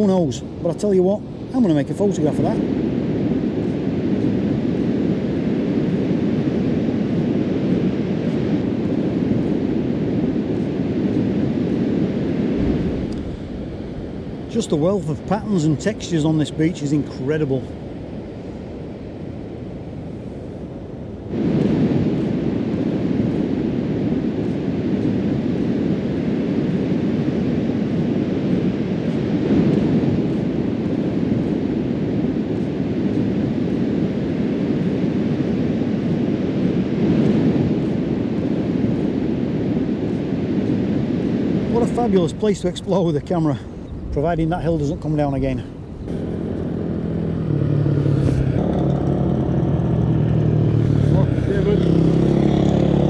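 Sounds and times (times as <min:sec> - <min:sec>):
low rumbling noise: 0:00.0 - 0:53.0
wind buffeting microphone: 0:00.0 - 0:53.0.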